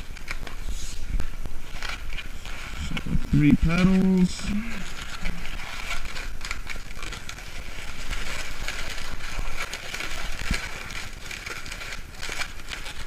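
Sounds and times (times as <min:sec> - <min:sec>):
balloon squeaking and rubbing: 0:00.0 - 0:13.0.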